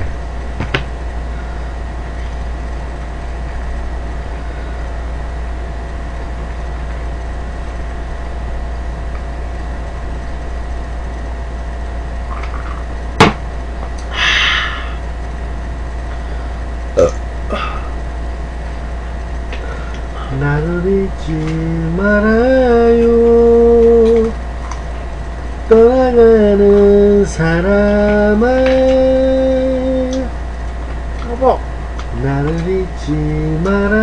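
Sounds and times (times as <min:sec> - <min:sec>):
low electrical hum: 0:00.0 - 0:34.0
sharp loud knock: 0:13.2 - 0:13.4
hiss: 0:14.1 - 0:15.0
short breathy burst: 0:14.1 - 0:15.0.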